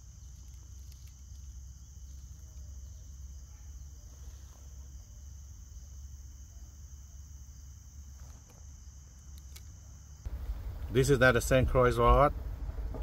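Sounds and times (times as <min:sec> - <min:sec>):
insects trilling: 0:00.0 - 0:12.7
low steady rumble: 0:09.8 - 0:13.0.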